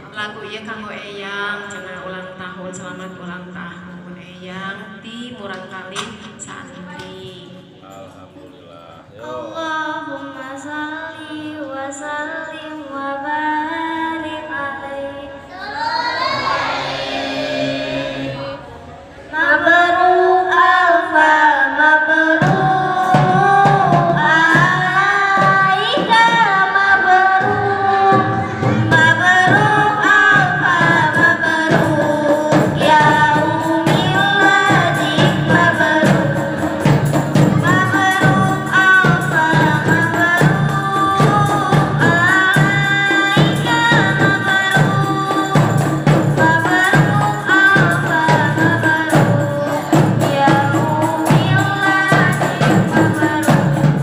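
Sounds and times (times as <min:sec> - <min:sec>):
girls singing into microphones: 0:09.2 - 0:54.0
frame drums beating: 0:22.4 - 0:54.0.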